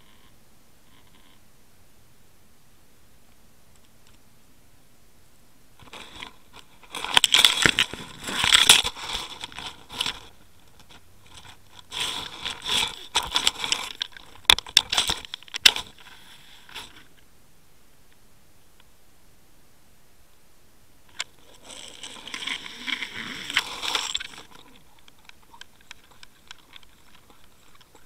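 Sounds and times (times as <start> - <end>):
gravel crunching on camera housing: 5.8 - 17.3, 21.1 - 28.0.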